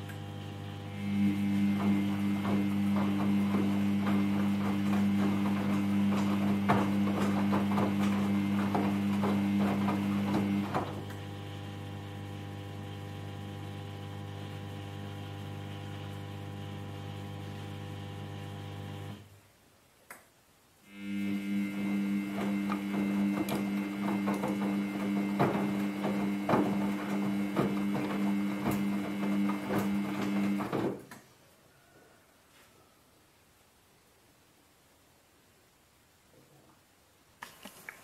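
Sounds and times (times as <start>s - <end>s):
washing machine motor hum: 0.0s - 19.3s, 20.9s - 31.0s
laundry knocking in drum: 1.8s - 11.0s.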